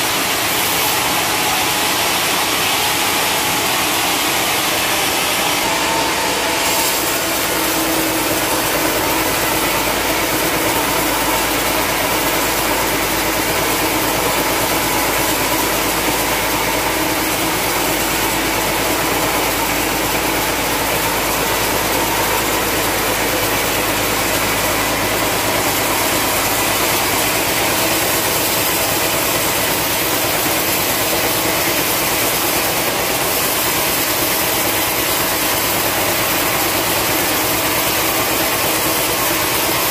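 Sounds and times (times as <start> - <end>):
band saw cutting log: 0.0 - 39.9
sawmill machine running: 0.0 - 39.9.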